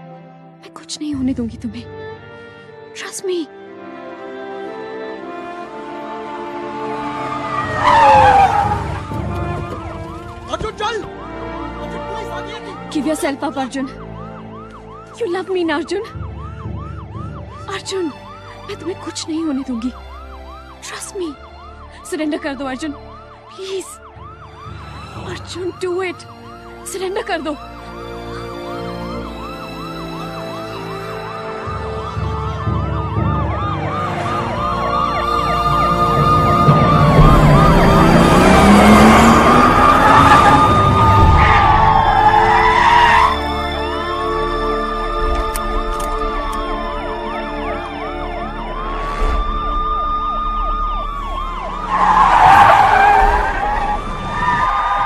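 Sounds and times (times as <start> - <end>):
police sirens sweeping: 5.2 - 55.0
long siren wail: 5.3 - 55.0
low vehicle rumble: 5.8 - 11.8, 27.8 - 55.0
car tyres screeching: 6.5 - 11.2, 36.1 - 44.0, 51.2 - 55.0.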